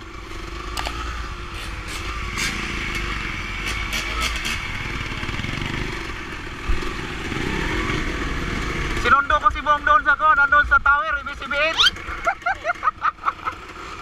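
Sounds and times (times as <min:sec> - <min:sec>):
dirt bike engine running: 0:00.0 - 0:10.5
other motorcycles nearby: 0:00.0 - 0:14.0.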